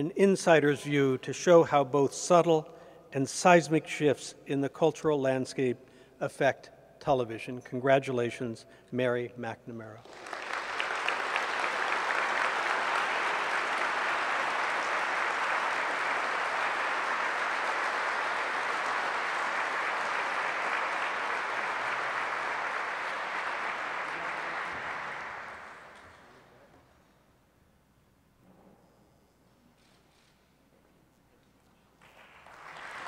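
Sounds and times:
audience applauding: 10.0s - 26.4s, 32.0s - 33.0s.

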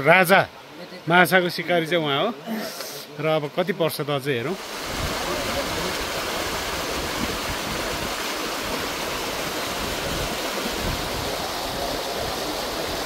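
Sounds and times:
stream water rushing: 4.5s - 13.0s.

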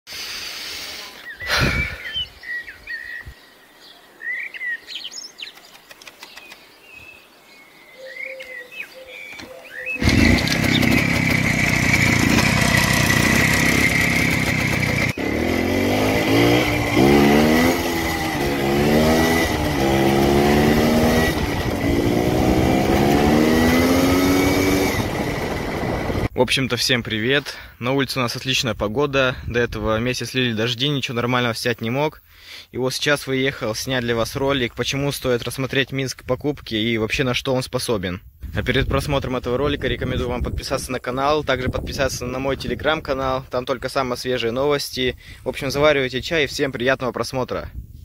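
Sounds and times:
birds chirping: 1.0s - 27.4s
two-stroke motorcycle engine: 10.0s - 26.3s.

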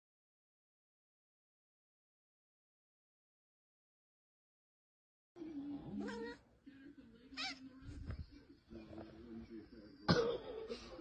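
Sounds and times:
cat meowing: 6.0s - 6.4s, 7.4s - 7.7s.

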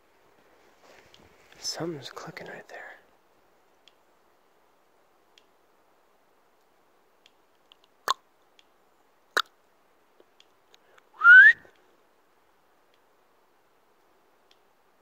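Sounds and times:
faint clicking in forest: 0.4s - 2.2s, 3.0s - 4.4s, 5.2s - 5.7s, 6.4s - 15.0s
short rising whistle: 11.2s - 11.6s.

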